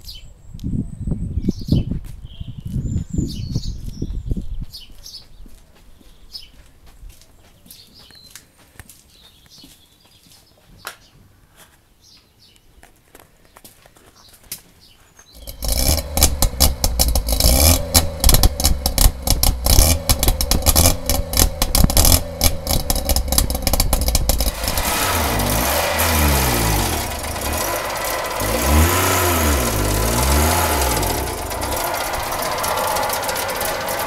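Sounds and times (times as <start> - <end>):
two-stroke engine revving: 15.4 - 34.0.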